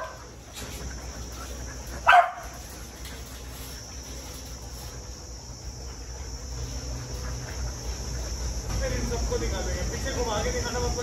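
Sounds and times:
dog barking: 2.0s - 2.5s.

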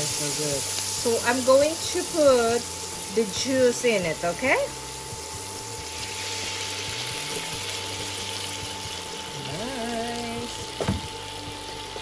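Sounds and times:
food sizzling in a pan: 0.0s - 12.0s
person humming: 6.9s - 8.2s, 9.3s - 10.9s
knock: 10.8s - 11.1s.

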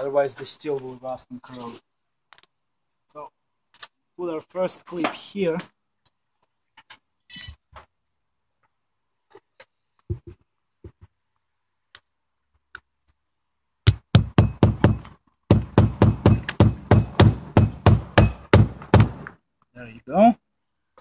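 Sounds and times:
hammer blows on nail: 14.2s - 19.3s.

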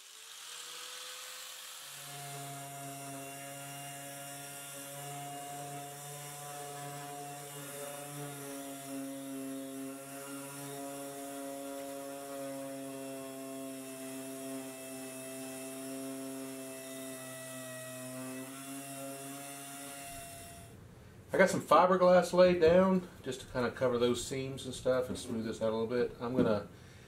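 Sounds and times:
orbital sander droning: 0.0s - 20.7s.

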